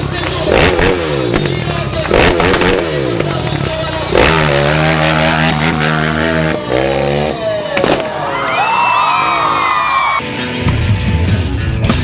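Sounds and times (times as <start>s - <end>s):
motorcycle engine revving: 0.0s - 8.2s.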